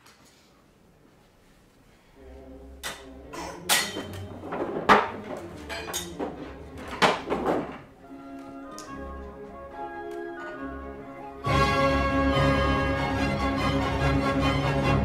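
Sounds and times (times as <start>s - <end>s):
faint music: 0.0s - 15.0s
tin cups clinking on wooden table: 3.6s - 7.8s.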